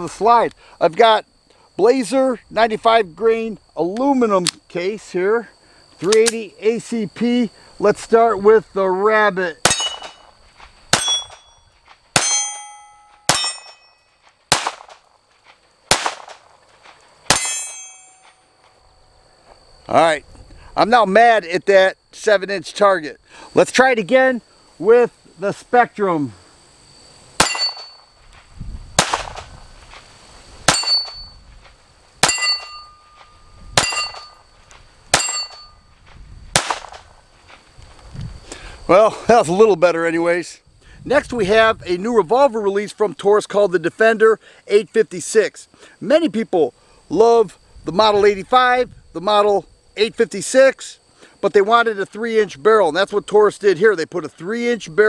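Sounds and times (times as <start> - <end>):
steel target ringing: 9.7 - 10.3, 10.9 - 14.2, 17.3 - 18.5, 27.4 - 28.2, 30.7 - 31.4, 32.2 - 35.8
pistol shots: 14.5 - 15.0, 15.9 - 16.5, 27.4 - 27.9, 29.0 - 29.5, 32.2 - 32.8, 33.8 - 34.3, 36.6 - 37.0.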